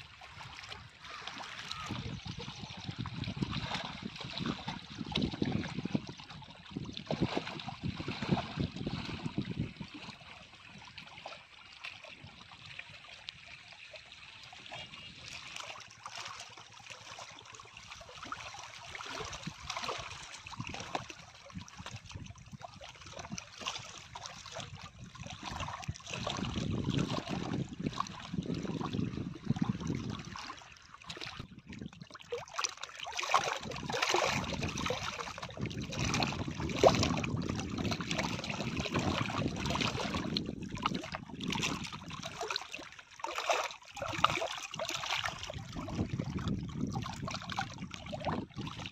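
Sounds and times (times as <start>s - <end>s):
river water splashing against rocks: 32.4s - 46.5s.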